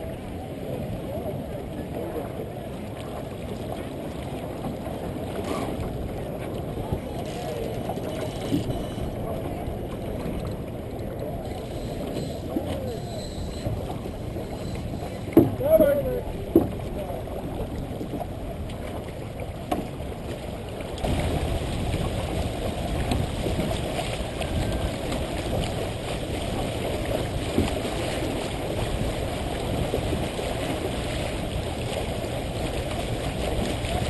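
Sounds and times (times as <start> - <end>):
water rushing along hull: 0.0 - 34.0
wind noise on microphone: 21.0 - 34.0.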